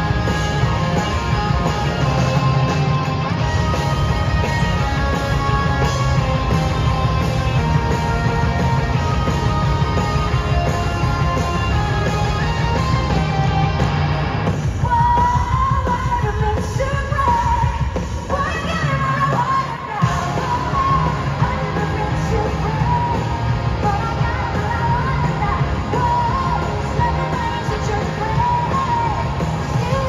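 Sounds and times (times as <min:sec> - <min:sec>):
live rock band playing: 0:00.0 - 0:30.0
woman singing: 0:14.8 - 0:30.0.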